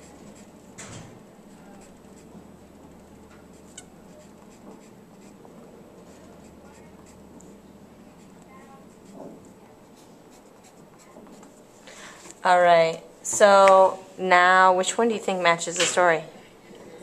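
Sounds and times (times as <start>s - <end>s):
pencil scratching on paper: 0.0s - 0.6s, 3.0s - 5.4s, 8.1s - 11.5s.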